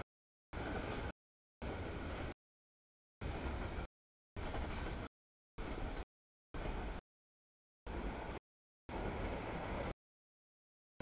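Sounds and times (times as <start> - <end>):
freight train cars rolling: 3.2 - 6.0, 7.9 - 10.0.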